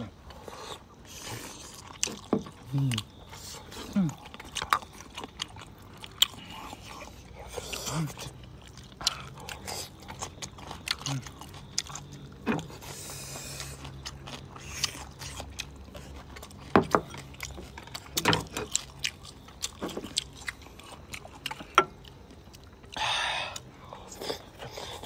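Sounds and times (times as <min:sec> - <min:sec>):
people chewing: 0:00.0 - 0:25.0.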